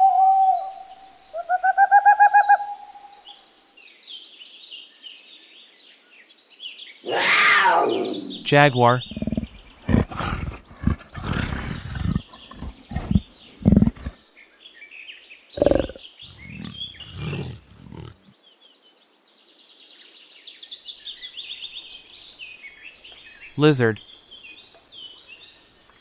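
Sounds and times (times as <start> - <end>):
big cat grunting roars: 7.1 - 14.2, 15.6 - 18.3
insects chirring: 7.1 - 14.2.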